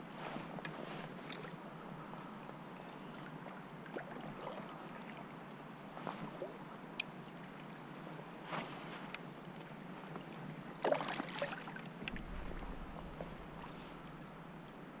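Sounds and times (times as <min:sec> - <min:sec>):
river water lapping at bank: 0:00.4 - 0:14.8
small splashes: 0:10.8 - 0:13.9.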